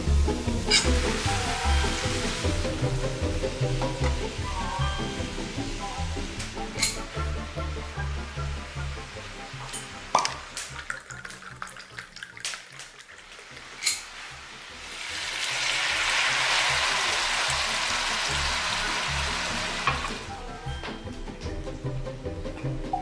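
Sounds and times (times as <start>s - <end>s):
food sizzling in a hot pan: 0.0s - 20.8s
wine pouring into a glass: 9.6s - 14.1s.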